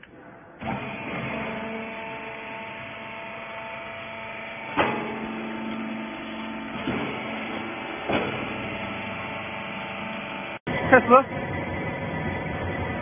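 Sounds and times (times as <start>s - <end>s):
baler motor humming: 0.6s - 13.0s
machine clunks: 4.6s - 10.3s.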